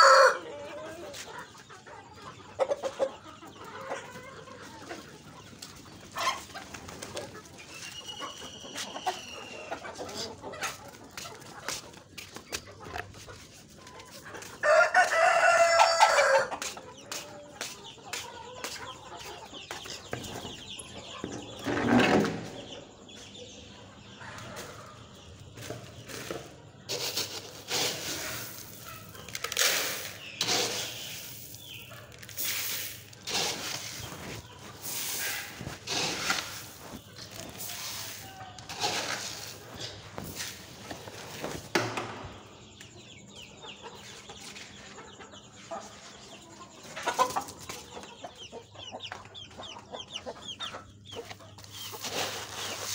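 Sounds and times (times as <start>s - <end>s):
rooster crowing: 0.0s - 0.6s, 14.6s - 16.6s
chickens clucking: 0.0s - 52.9s.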